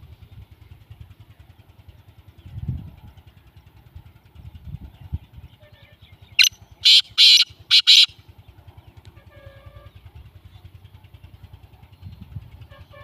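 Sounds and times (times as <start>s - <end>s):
engine puttering: 0.0s - 13.0s
bird calling harshly: 6.4s - 8.2s.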